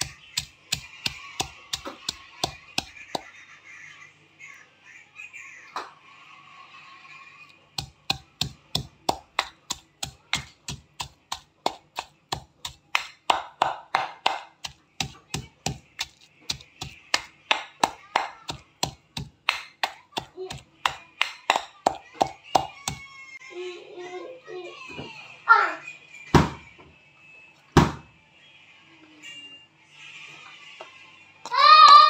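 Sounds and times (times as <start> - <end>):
stone pestle pounding in mortar: 0.0 - 3.3, 7.8 - 23.0.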